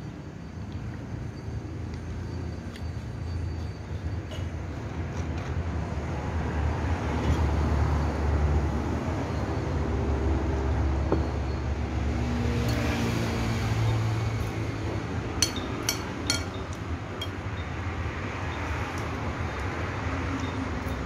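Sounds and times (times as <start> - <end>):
low traffic rumble: 0.0 - 21.0
cutlery clinking on a plate: 15.4 - 16.6.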